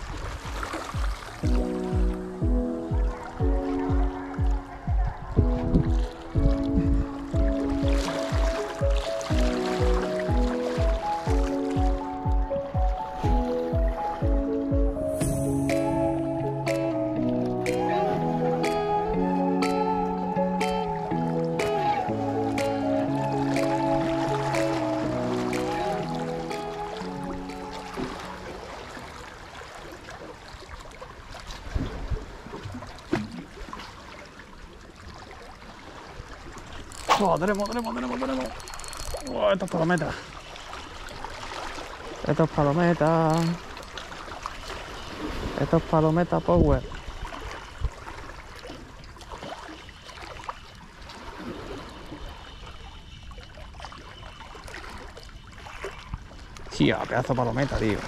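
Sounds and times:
sea water splashing on rocks: 0.0 - 1.7
water lapping against rocks: 0.0 - 2.3, 3.0 - 14.1, 23.5 - 45.7, 46.6 - 58.0.

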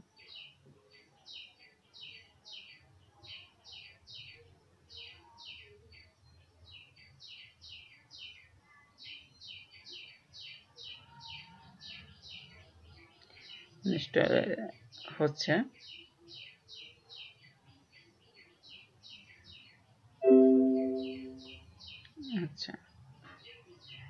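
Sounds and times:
bird chirping faintly: 15.7 - 22.3.

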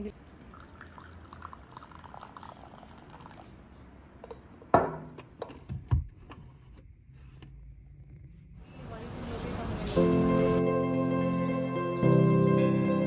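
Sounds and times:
tea pouring into a cup: 0.1 - 3.6.

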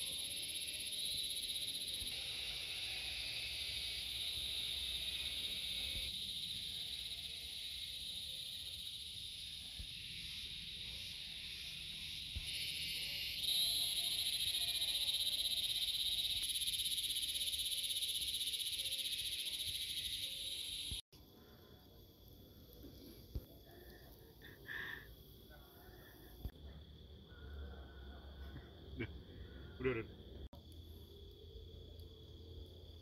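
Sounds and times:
frogs and insects trilling: 0.0 - 21.0, 27.1 - 32.0.

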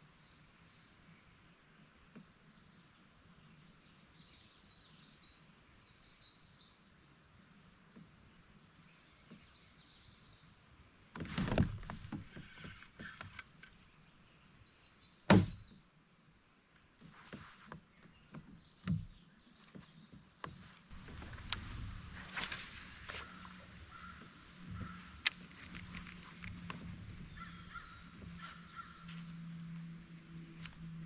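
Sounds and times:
knocks against plastic kayak: 15.3 - 15.6.

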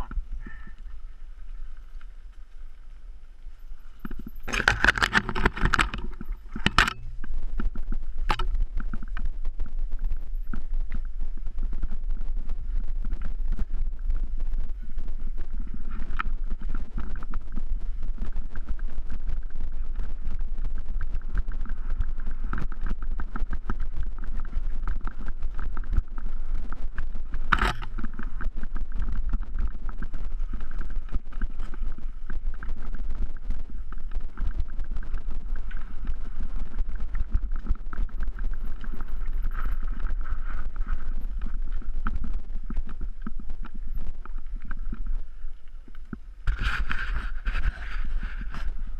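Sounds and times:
mountain bike rattling on stony trail: 0.0 - 44.4
wind rumble on microphone: 0.0 - 48.9.

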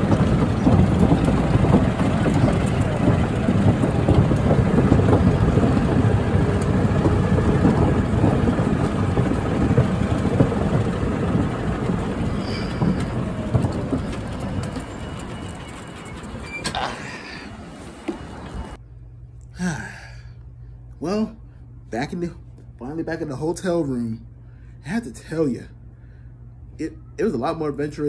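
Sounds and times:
wind on microphone: 0.0 - 16.3
vehicle rumbling on wooden boards: 0.0 - 18.8.

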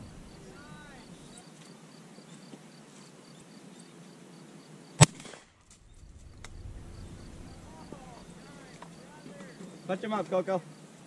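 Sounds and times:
shotgun shot: 5.0 - 5.6.

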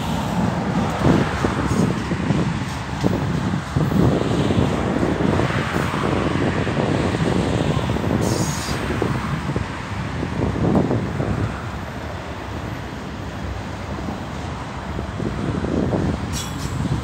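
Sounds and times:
steel wheels clattering on rails: 0.0 - 4.2, 16.0 - 17.0
freight train rumbling past: 0.0 - 17.0.

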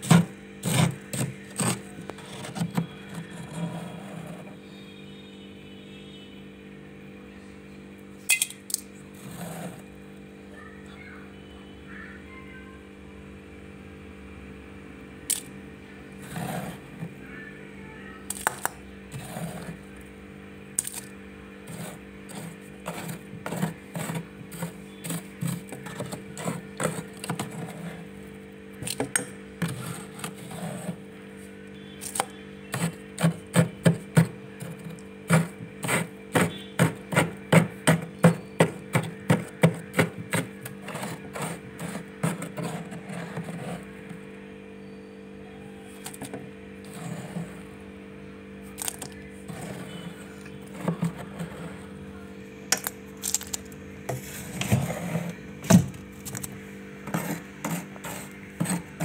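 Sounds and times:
spoon scraping frost: 0.0 - 4.6, 9.2 - 9.8, 16.2 - 17.1, 18.3 - 19.9, 20.8 - 44.2, 46.0 - 47.8, 48.7 - 52.0, 52.7 - 59.0
steady hum: 0.0 - 59.0.

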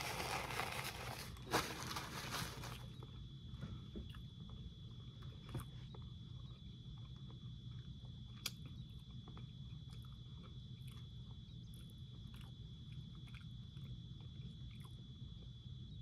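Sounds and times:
steady low hum: 0.0 - 16.0
chewing food: 4.1 - 16.0.

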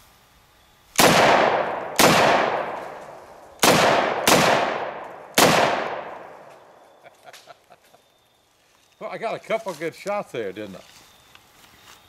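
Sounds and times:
rifle shots with echo: 1.0 - 6.8.

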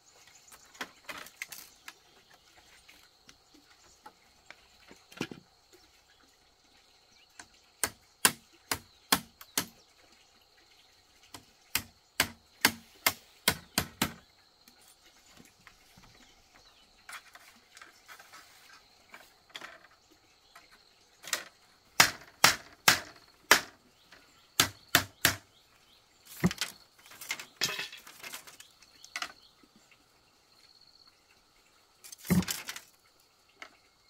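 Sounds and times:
chopping knocks on wood: 11.7 - 14.2, 22.0 - 23.7, 24.6 - 25.4
rustling: 17.0 - 19.9.

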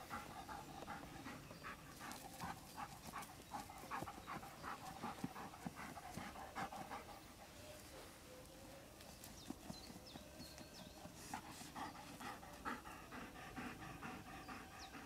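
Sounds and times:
dog panting: 0.0 - 7.7, 9.2 - 15.0.

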